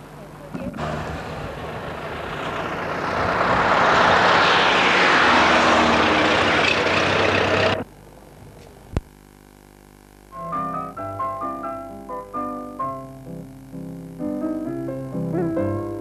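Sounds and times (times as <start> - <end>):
car driving on road: 0.5 - 7.9
piano music: 14.3 - 16.0.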